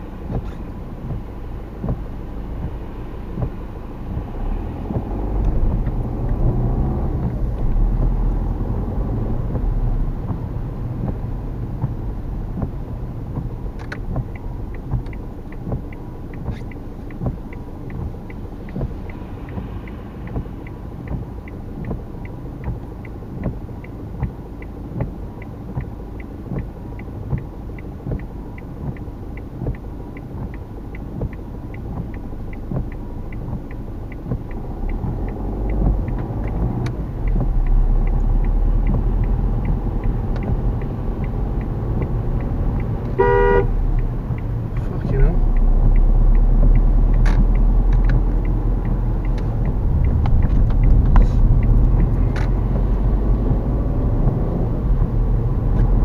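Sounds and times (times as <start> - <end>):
engine and wet road rumble: 0.0 - 56.0
turn signal ticking: 0.0 - 56.0
car horn toot: 43.1 - 43.8.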